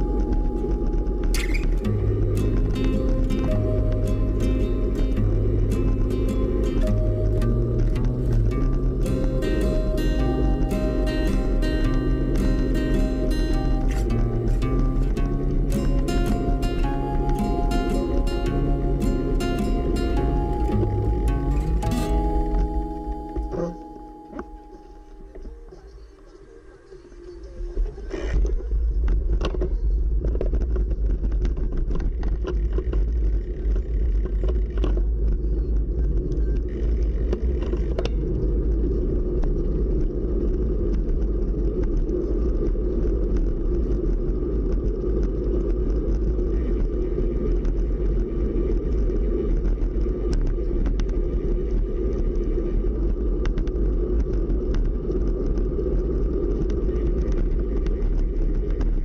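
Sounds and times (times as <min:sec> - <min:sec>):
wind rumbling on microphone: 0:00.0 - 0:23.6, 0:24.8 - 0:59.0
tyre noise on pavement: 0:28.2 - 0:59.0.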